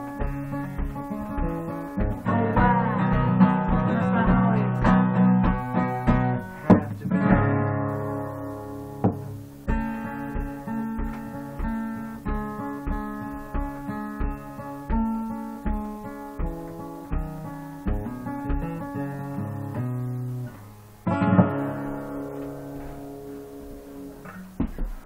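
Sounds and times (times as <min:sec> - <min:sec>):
acoustic guitar: 0:00.0 - 0:25.0
steady low thump: 0:00.1 - 0:07.8, 0:09.0 - 0:18.8.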